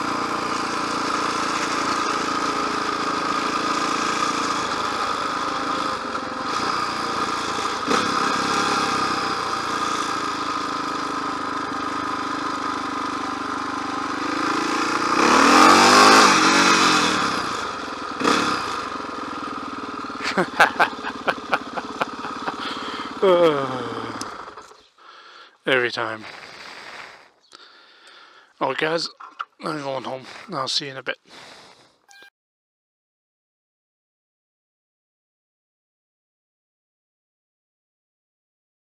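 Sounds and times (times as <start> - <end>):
motorcycle engine running: 0.0 - 24.9.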